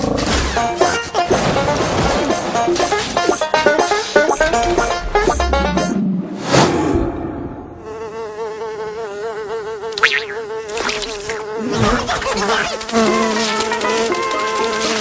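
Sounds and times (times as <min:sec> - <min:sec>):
cartoon fly buzzing: 0:02.3 - 0:05.9, 0:07.7 - 0:15.0.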